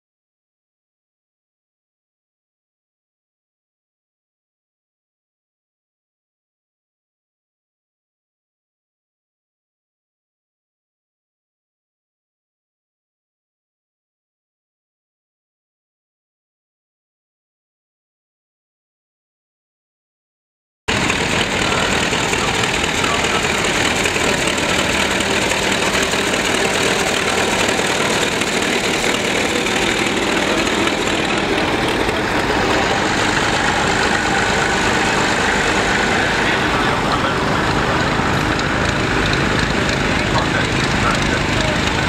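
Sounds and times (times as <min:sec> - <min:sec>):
tractor engines running: 0:20.9 - 0:42.0.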